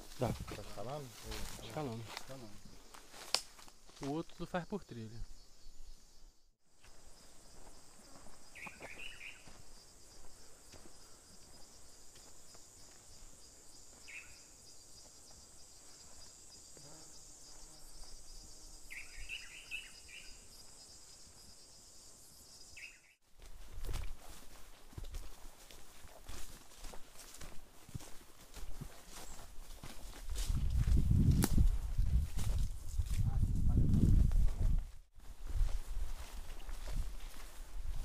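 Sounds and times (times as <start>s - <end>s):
high-pitched insect chorus: 0.1s - 23.2s
short bird calls: 8.6s - 9.5s.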